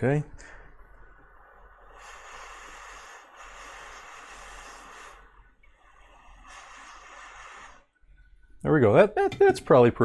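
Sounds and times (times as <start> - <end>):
hot air station blowing hiss: 1.2 - 8.0.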